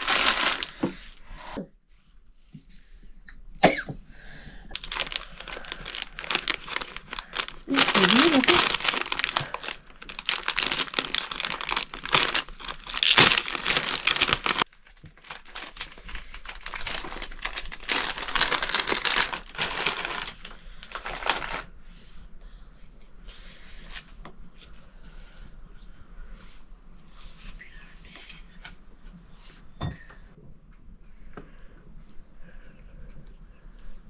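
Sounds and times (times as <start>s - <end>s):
crinkling and crumpling: 0.0s - 1.0s, 4.7s - 21.7s
tearing: 10.3s - 14.6s.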